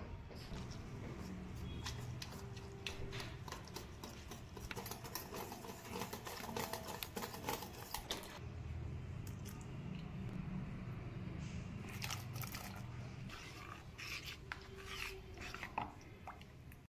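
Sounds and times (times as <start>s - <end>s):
metal spoon scraping steel bowl: 1.6s - 8.4s, 13.3s - 16.0s.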